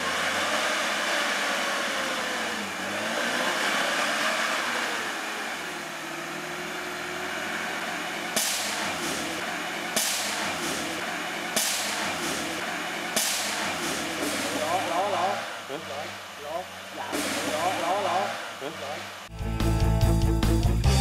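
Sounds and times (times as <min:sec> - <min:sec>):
pickup engine revving in mud: 0:00.0 - 0:19.3
sharp knock: 0:08.4 - 0:14.6.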